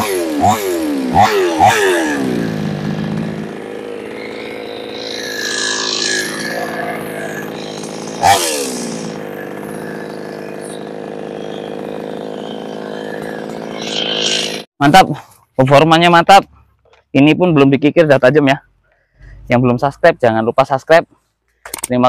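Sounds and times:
chainsaw throttle blip: 0:00.0 - 0:14.6
chainsaw engine idling: 0:00.0 - 0:14.7.

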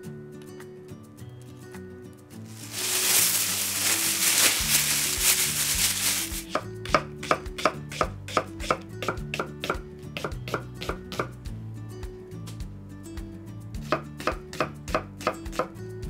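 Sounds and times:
plastic bag rustling: 0:02.4 - 0:06.6.

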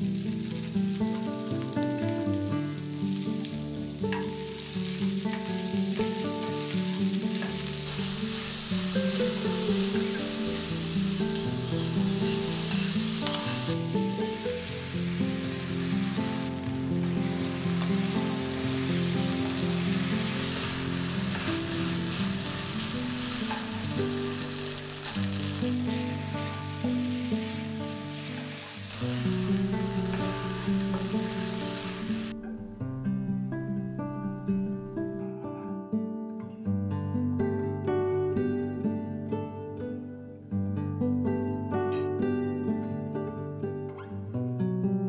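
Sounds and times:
food sizzling in hot oil: 0:00.0 - 0:32.3
soft background music: 0:00.0 - 0:36.0.

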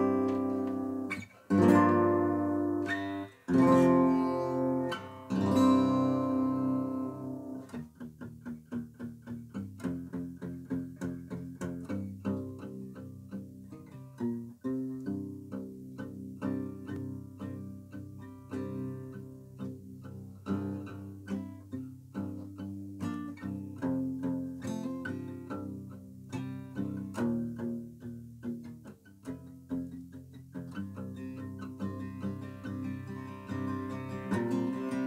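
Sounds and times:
acoustic guitar plucked notes: 0:00.0 - 0:35.0.

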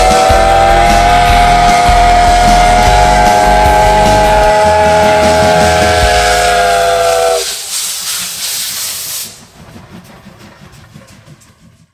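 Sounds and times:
steam whistle blast: 0:00.0 - 0:08.3
loud steam hissing: 0:00.0 - 0:10.8.

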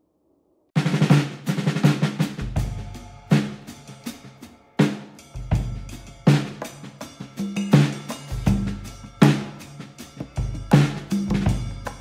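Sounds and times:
snare and bass drum beat: 0:00.8 - 0:12.0.

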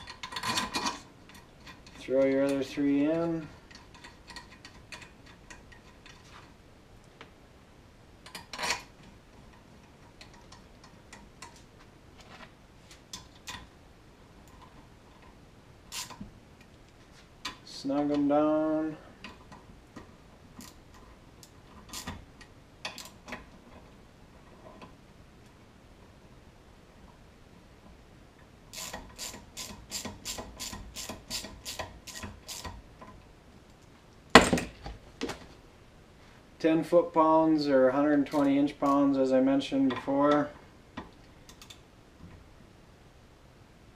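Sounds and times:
ratchet wrench clicking: 0:15.9 - 0:16.2, 0:28.7 - 0:32.8
tool clattering onto workbench: 0:34.4 - 0:35.4.

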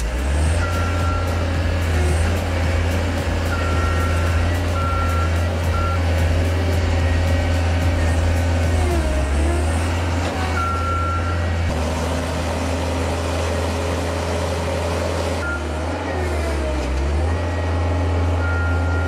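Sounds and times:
diesel engines running under load: 0:00.0 - 0:19.0.

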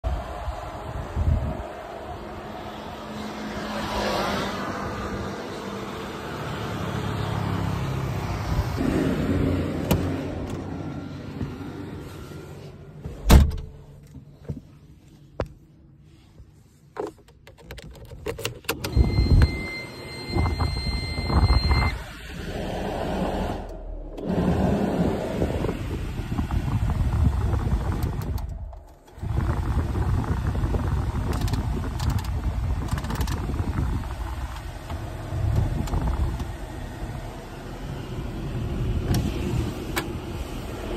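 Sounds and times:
wind: 0:00.0 - 0:40.9
car door shutting: 0:13.0 - 0:13.9
steady electronic beep: 0:18.9 - 0:22.0.

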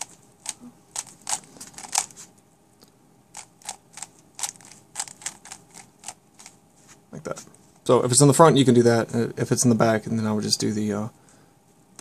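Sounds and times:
puzzle cube clicking: 0:00.0 - 0:02.1, 0:03.4 - 0:06.5.

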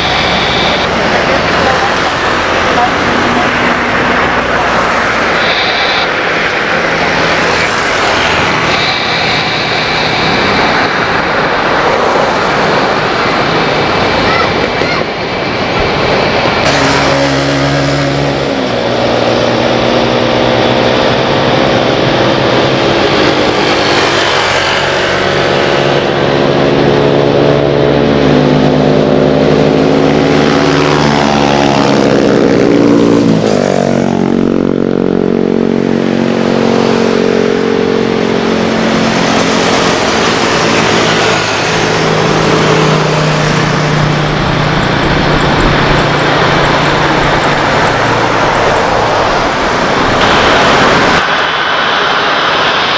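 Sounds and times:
jet engines whining and droning: 0:00.0 - 0:52.9.

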